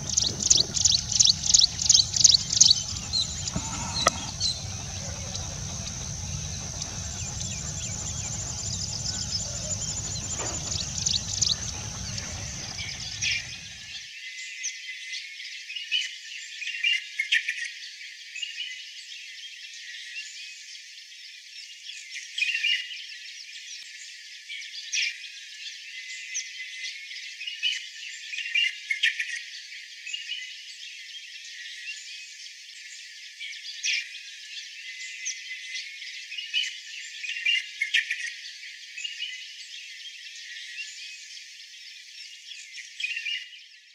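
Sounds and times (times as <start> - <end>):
bird chirping and warbling: 0.0 - 14.0
low rumble: 0.0 - 14.0.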